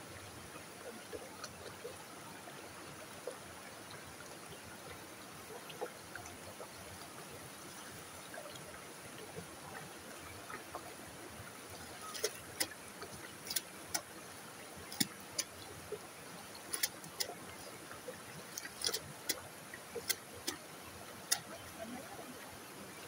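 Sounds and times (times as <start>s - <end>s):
creek water running over rocks: 0.0s - 23.0s
hands splashing in water: 11.9s - 12.7s, 16.6s - 17.4s, 18.5s - 19.4s.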